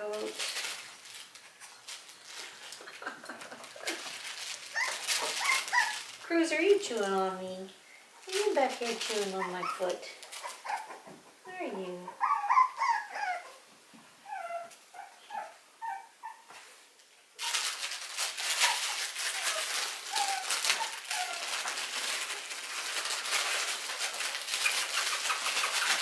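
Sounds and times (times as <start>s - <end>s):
loud scratchy rustling: 0.0s - 7.5s, 8.2s - 10.9s, 17.4s - 26.0s
puppies whimpering: 4.7s - 6.1s, 9.2s - 11.2s, 12.1s - 13.6s, 18.5s - 21.8s.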